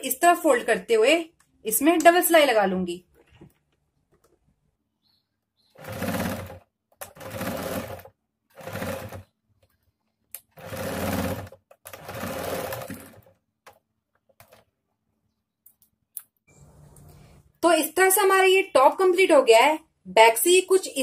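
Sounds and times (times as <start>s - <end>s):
sewing machine stitching: 5.7s - 9.3s, 10.4s - 13.4s.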